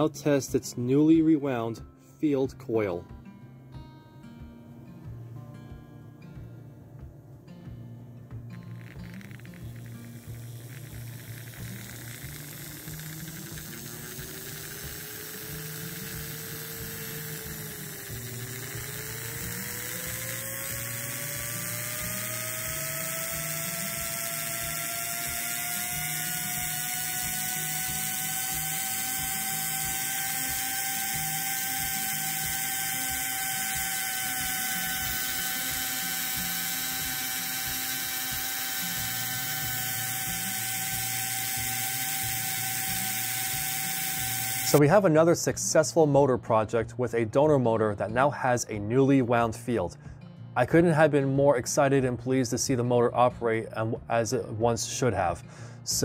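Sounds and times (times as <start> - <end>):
electric motor whine: 8.5 - 44.8.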